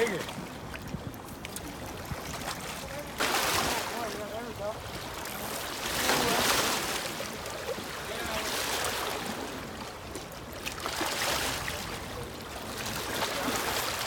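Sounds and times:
water lapping against rocks: 0.0s - 14.0s.

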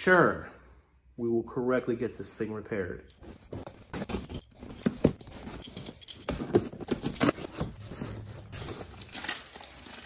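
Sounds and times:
box and parts handling noise: 3.1s - 10.0s.

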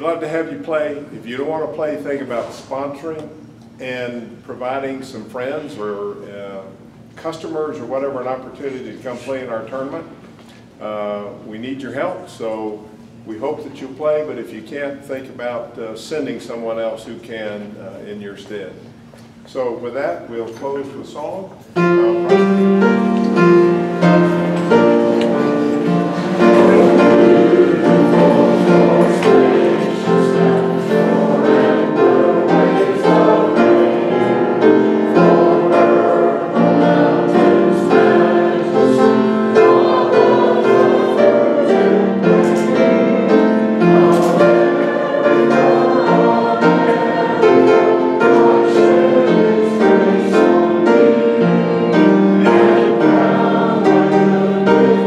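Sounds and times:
instrumental accompaniment: 21.7s - 55.0s
group singing in chorus: 21.8s - 55.0s.

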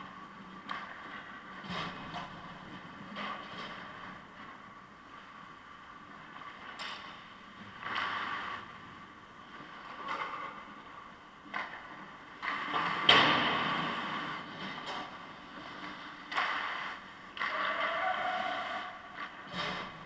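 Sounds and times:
skate blades scraping ice: 11.6s - 20.0s.

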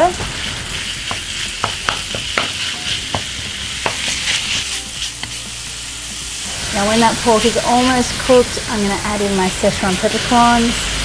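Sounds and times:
spatula scraping a pan: 0.0s - 8.5s
meat sizzling in hot oil: 0.0s - 11.0s.

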